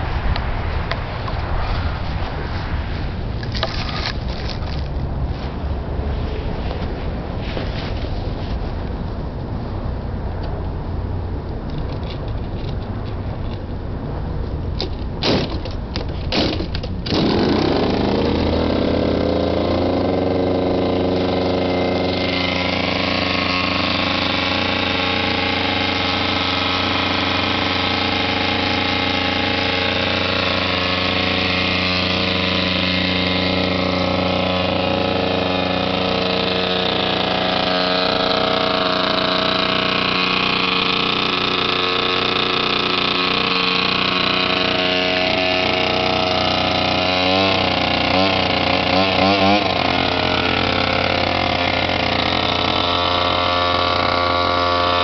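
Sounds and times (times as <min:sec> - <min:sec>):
scooter engine kick-started: 0:14.8 - 0:55.0
scooter engine idling: 0:16.8 - 0:55.0.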